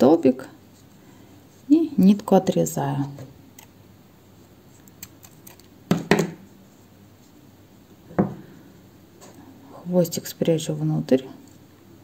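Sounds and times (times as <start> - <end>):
scissors snipping yarn: 4.8 - 5.7.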